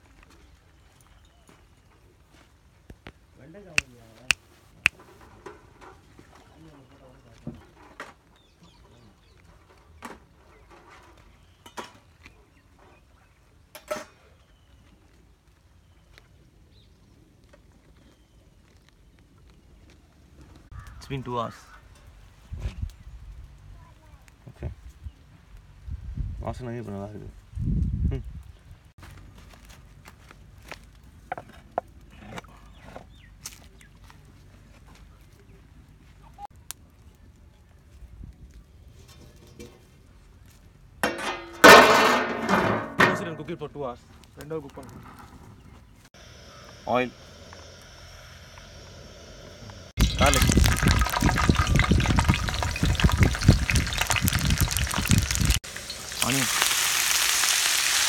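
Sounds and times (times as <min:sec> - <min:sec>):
metal pot knocking on fire stand: 0:41.0 - 0:43.4.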